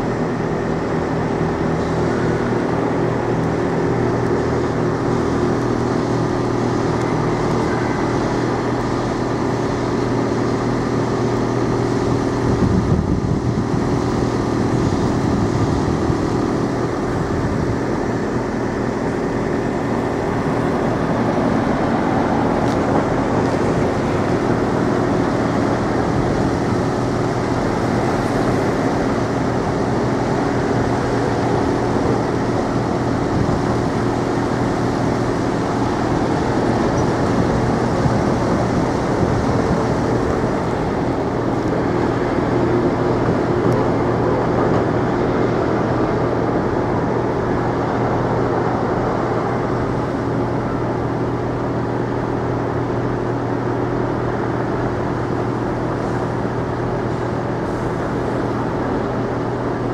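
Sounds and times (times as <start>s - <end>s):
engine drone: 0.0s - 59.9s.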